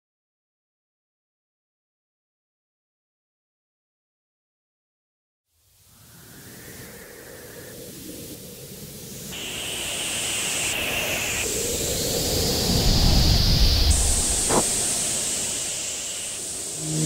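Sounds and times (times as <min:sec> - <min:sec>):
hissing whoosh riser: 0:10.2 - 0:17.0
high airy tones: 0:13.9 - 0:17.0.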